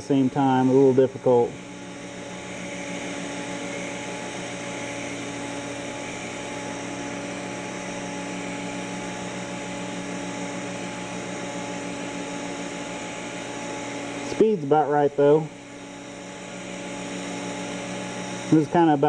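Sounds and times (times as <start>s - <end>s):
welding arc buzzing hum: 0.0s - 19.0s.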